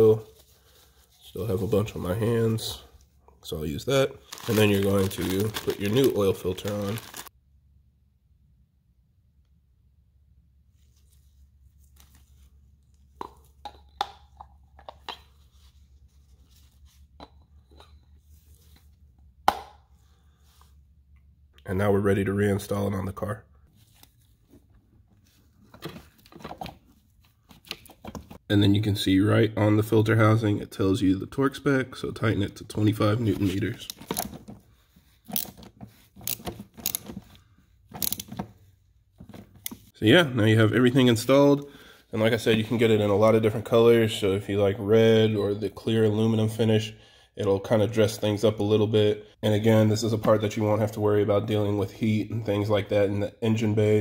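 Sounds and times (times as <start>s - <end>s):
ratchet wrench clicking: 38.0s - 38.3s.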